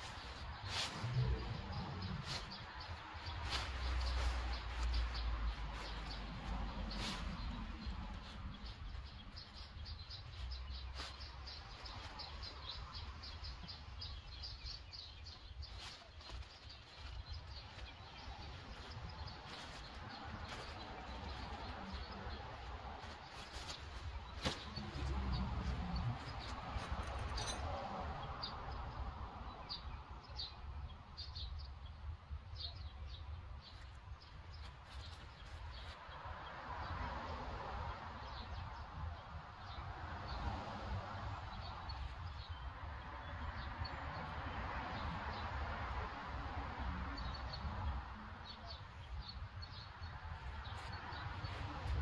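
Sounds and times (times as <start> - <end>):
low outdoor rumble: 0.0 - 13.1
small bird chirping: 0.0 - 25.1
small birds chirping: 0.0 - 37.0, 38.1 - 52.0.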